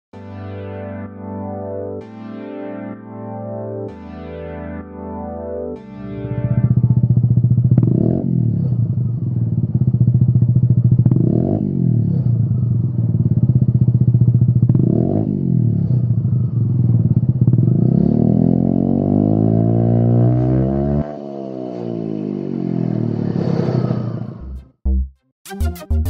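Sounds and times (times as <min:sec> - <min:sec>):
scooter engine revving: 0:06.4 - 0:24.6.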